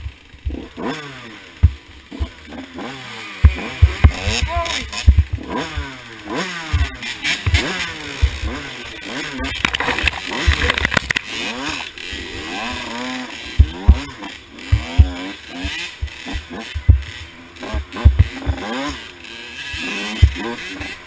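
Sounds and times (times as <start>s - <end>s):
dirt bike engine revving: 0.0s - 21.0s
low thumps: 1.6s - 2.4s, 3.4s - 6.0s, 6.7s - 8.7s, 13.5s - 18.7s
sharp clicks: 9.4s - 11.8s.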